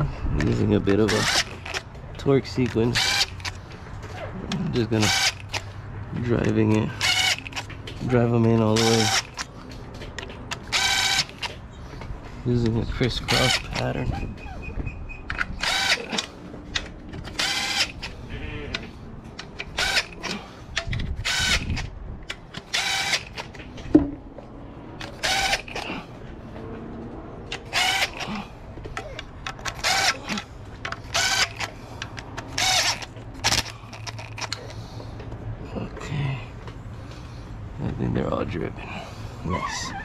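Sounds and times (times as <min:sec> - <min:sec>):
cordless drill bursts: 0:01.1 - 0:01.8, 0:02.9 - 0:03.5, 0:05.0 - 0:05.6, 0:07.0 - 0:07.7, 0:08.8 - 0:09.4, 0:10.6 - 0:11.5, 0:13.2 - 0:13.8, 0:15.5 - 0:16.4, 0:17.3 - 0:18.3, 0:19.7 - 0:20.4, 0:21.2 - 0:21.8, 0:22.7 - 0:23.4, 0:25.0 - 0:25.8, 0:27.6 - 0:28.4, 0:29.7 - 0:30.3, 0:31.0 - 0:31.7, 0:32.5 - 0:34.6.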